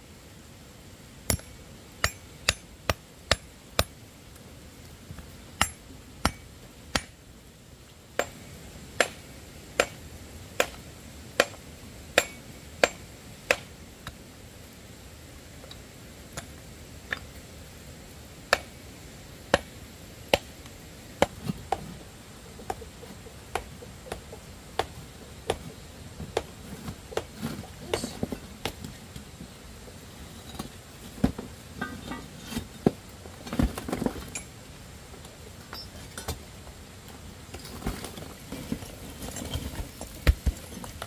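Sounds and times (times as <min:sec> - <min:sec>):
hand tool striking hard object: 0:12.2 - 0:13.6.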